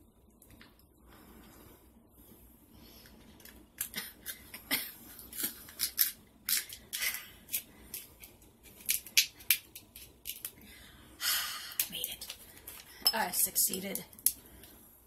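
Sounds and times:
crab shell cracking: 5.3s - 10.6s.

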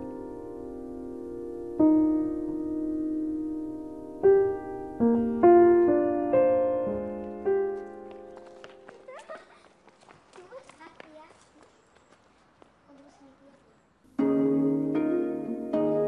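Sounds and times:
slow piano music: 0.0s - 9.0s, 14.2s - 16.0s.

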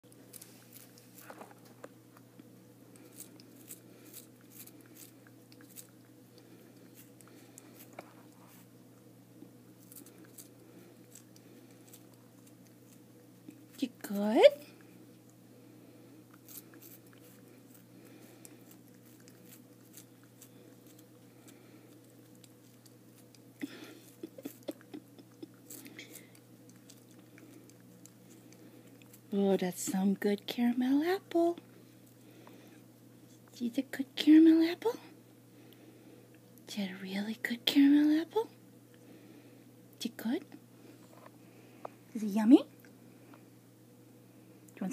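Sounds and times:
steady low hum: 0.0s - 44.9s
cat chewing: 0.1s - 13.8s, 14.7s - 29.4s.

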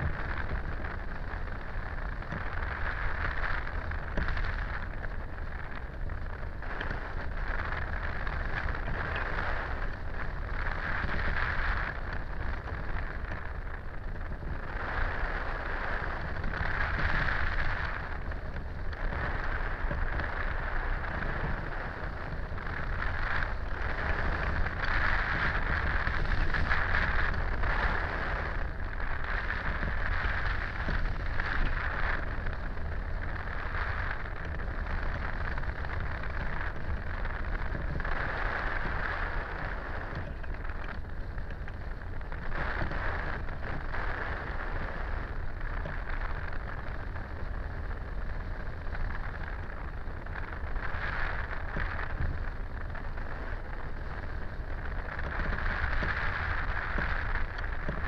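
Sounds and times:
deep rumble: 0.0s - 58.0s
wind rushing over camera: 0.0s - 58.0s.

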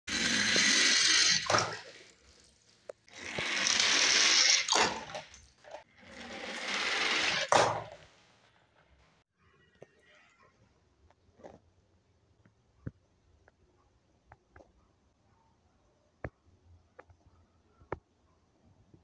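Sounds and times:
toy cars rolling rattle: 0.1s - 8.1s.

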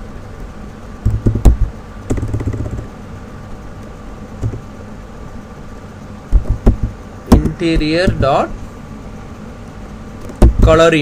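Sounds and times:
low background hum: 0.0s - 11.0s
low thumps: 4.4s - 4.7s, 6.3s - 8.6s, 10.3s - 10.8s.

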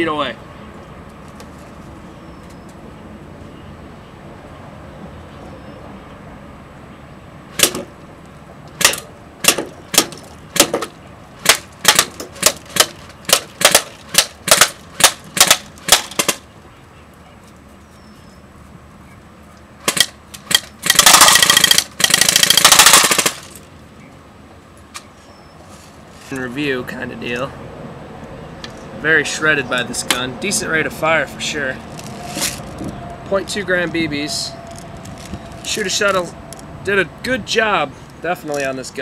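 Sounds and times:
airsoft rifle full-auto bursts: 19.9s - 23.5s.

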